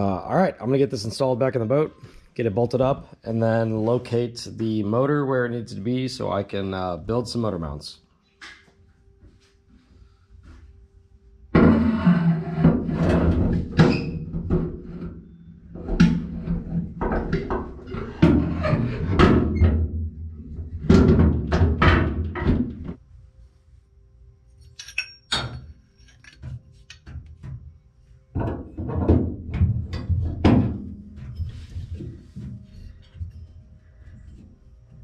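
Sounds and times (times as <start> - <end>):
metal knocks and clunks: 11.6 - 23.0, 28.3 - 33.5.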